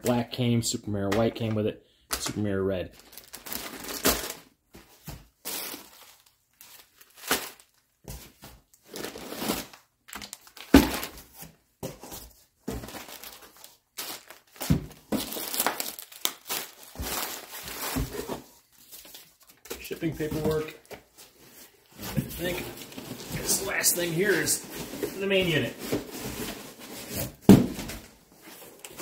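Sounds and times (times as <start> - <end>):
plastic bags crinkling: 2.9 - 4.5, 5.4 - 7.9, 8.8 - 11.2, 12.7 - 20.9, 22.2 - 27.4.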